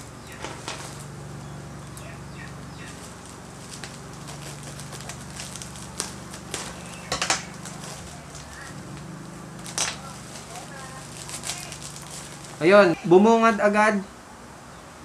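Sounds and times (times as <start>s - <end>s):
plastic crinkling: 2.8s - 12.7s
scissors snipping bubble wrap: 3.7s - 8.7s, 9.6s - 12.6s.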